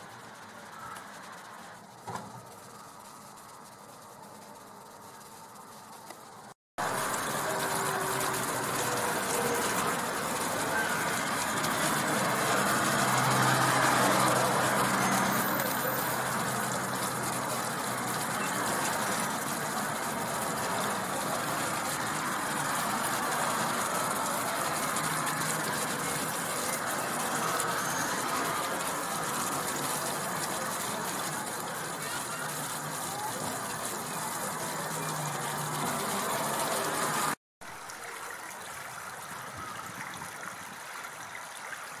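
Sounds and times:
rushing outdoor ambience: 0:00.0 - 0:37.4
faint voices: 0:02.5 - 0:38.5.

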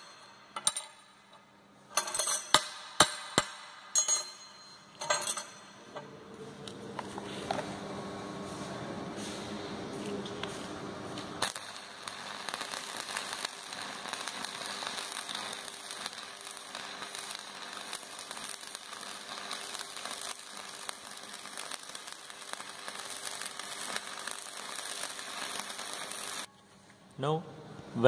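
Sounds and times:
welding arc crackling and sizzling: 0:09.8 - 0:26.5.

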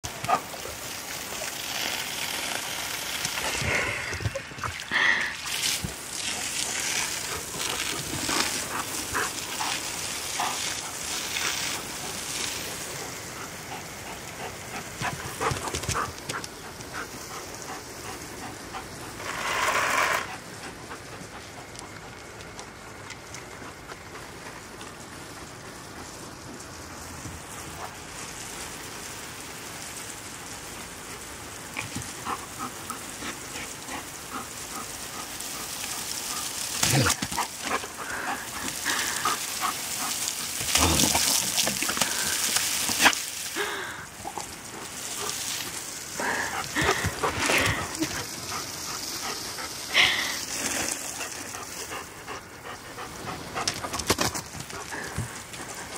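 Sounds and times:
dog snapping and splashing: 0:00.0 - 0:17.4, 0:31.8 - 0:49.8, 0:53.3 - 0:55.9
hose water spraying: 0:00.0 - 0:55.9.

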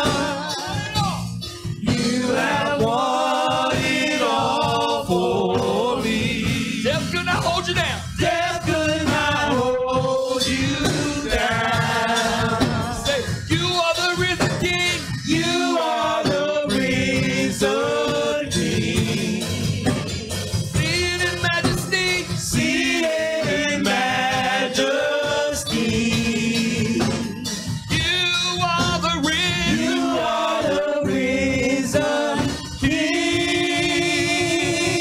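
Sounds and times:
man singing gospel: 0:00.0 - 0:20.1, 0:20.7 - 0:35.0.

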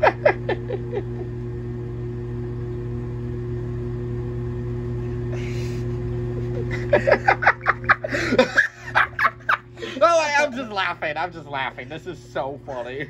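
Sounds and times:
person laughing: 0:00.0 - 0:01.7, 0:05.3 - 0:11.0, 0:12.6 - 0:13.0
washing machine spinning: 0:00.0 - 0:13.0.

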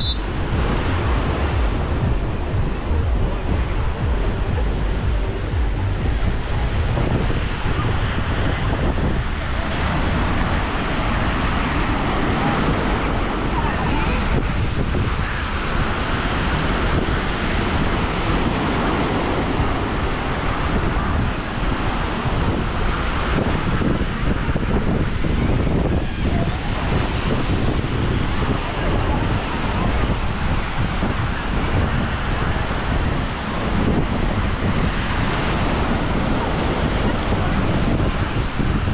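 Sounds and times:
wind buffeting microphone: 0:00.0 - 0:38.9
small waves breaking on sand: 0:06.3 - 0:38.9.

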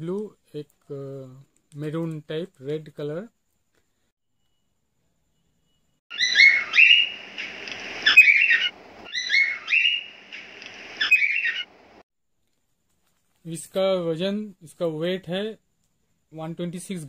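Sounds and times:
chirpy whistle-like sound effect: 0:08.0 - 0:10.1.

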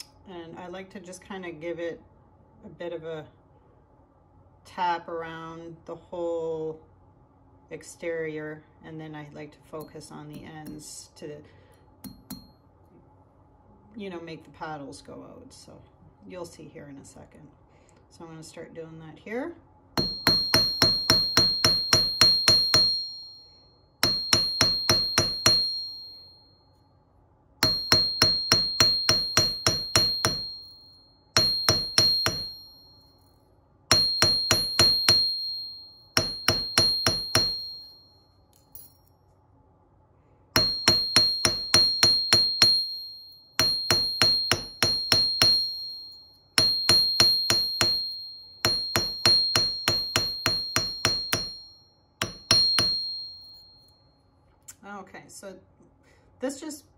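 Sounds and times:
hammer tapping on anvil: 0:12.0 - 0:12.6, 0:20.0 - 0:26.2, 0:27.6 - 0:30.8, 0:31.4 - 0:33.0, 0:33.9 - 0:39.1, 0:40.6 - 0:53.7.

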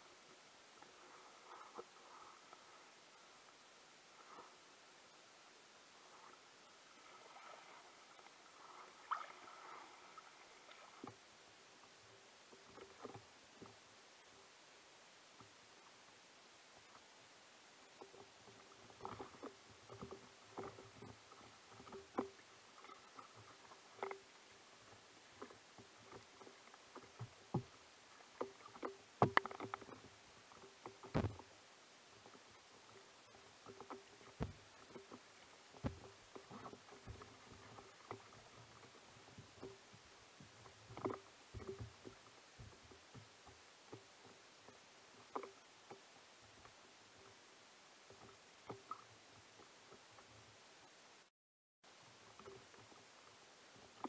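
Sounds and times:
small waves knocking against canoe hull: 0:06.1 - 0:13.9, 0:17.8 - 0:50.6, 0:51.9 - 0:54.0.

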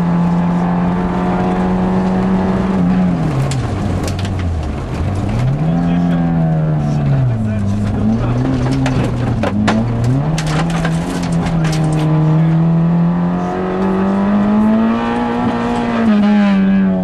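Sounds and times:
rally car engine revving: 0:00.0 - 0:17.0
gravel striking car: 0:01.4 - 0:12.6.

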